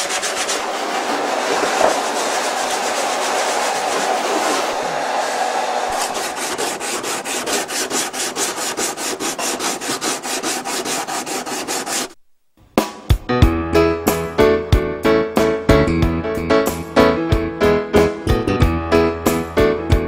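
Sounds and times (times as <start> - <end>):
sandpaper rubbing on wood: 0.0 - 4.9, 5.9 - 12.2.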